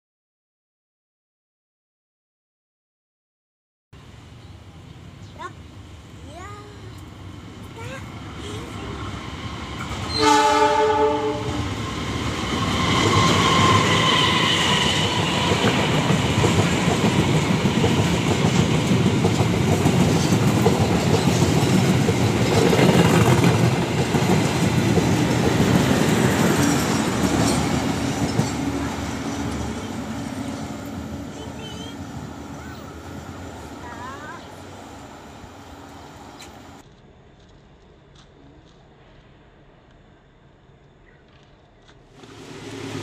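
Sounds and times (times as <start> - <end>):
train wheels rumbling on rails: 6.3 - 43.0
train horn blast: 10.0 - 11.7.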